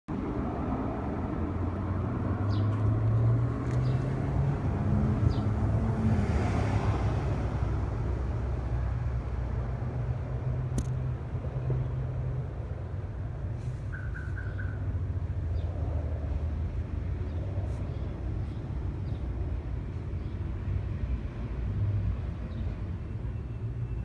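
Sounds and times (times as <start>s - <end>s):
engine rumble with hum: 0.1s - 6.4s.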